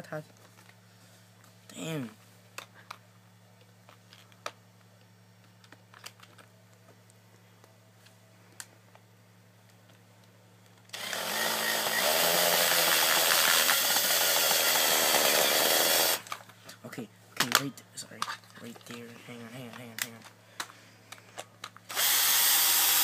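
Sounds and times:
plastic handling clicks: 0:03.6 - 0:07.0, 0:19.7 - 0:21.9
power tool running: 0:10.9 - 0:16.3, 0:21.9 - 0:23.0.

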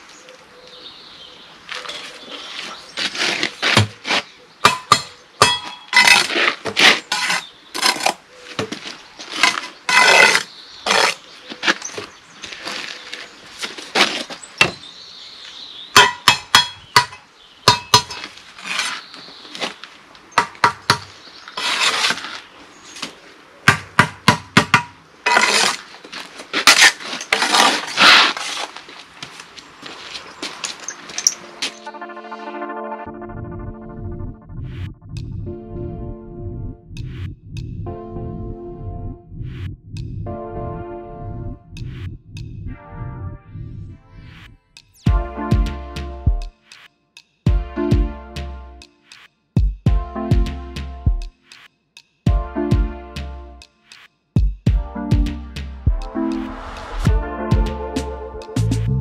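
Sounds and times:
trowel scraping mortar: 0:01.9 - 0:04.3, 0:05.4 - 0:12.0, 0:17.9 - 0:19.7, 0:21.5 - 0:22.5, 0:25.3 - 0:28.8
trowel knocking on blocks: 0:04.7 - 0:08.8, 0:16.0 - 0:18.8, 0:20.4 - 0:22.1, 0:23.7 - 0:25.8.

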